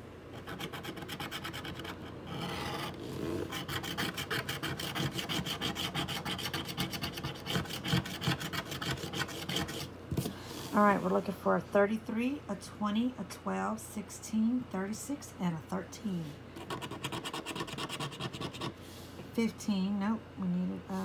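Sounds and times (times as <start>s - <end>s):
plastic scraper scratching ticket: 0.4s - 9.9s, 16.6s - 18.7s.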